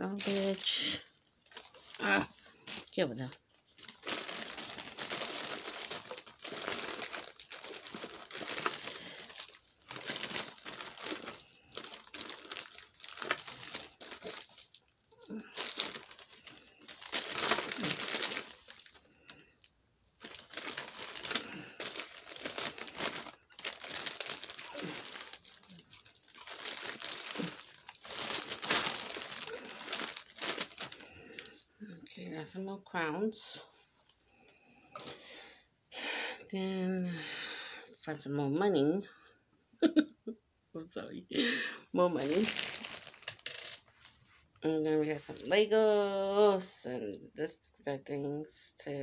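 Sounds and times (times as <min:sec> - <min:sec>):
bag crinkling and rustling: 0:00.0 - 0:31.7, 0:42.1 - 0:45.5.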